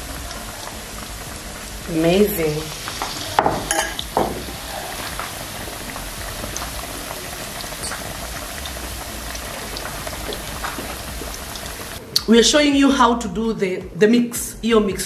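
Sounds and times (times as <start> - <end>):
food deep-frying in oil: 0.0 - 12.0.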